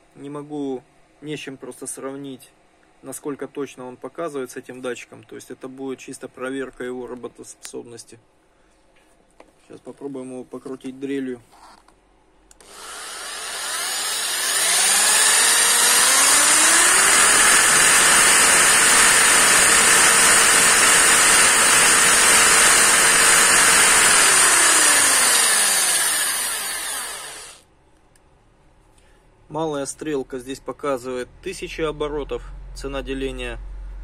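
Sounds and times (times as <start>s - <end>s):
electric drill motor whine: 12.6s - 27.6s.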